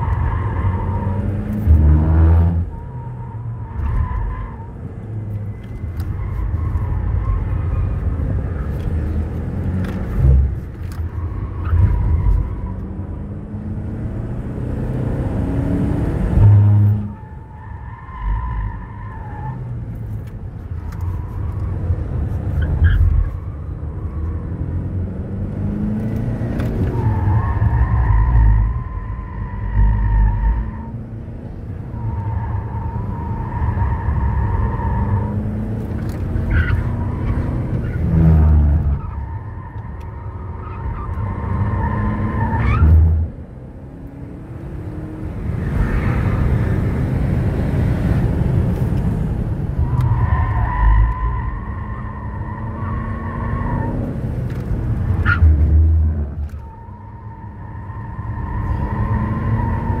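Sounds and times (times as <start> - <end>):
car engine revving: 0.0 - 2.8, 22.2 - 60.0.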